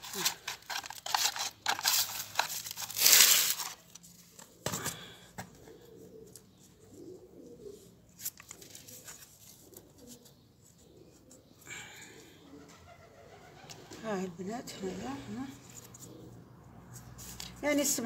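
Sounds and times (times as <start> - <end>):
pigeon cooing: 4.3 - 16.8.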